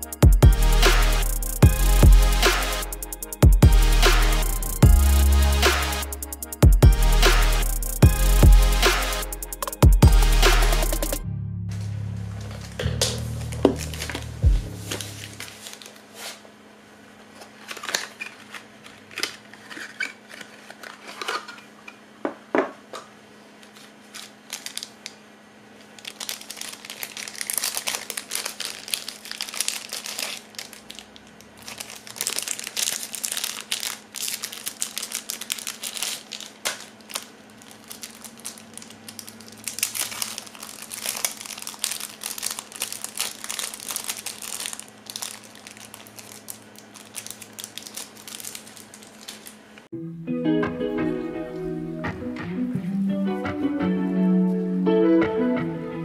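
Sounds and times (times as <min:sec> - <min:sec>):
plastic wrap crinkling: 0:12.4 - 0:16.6, 0:17.2 - 0:21.7, 0:23.5 - 0:49.8.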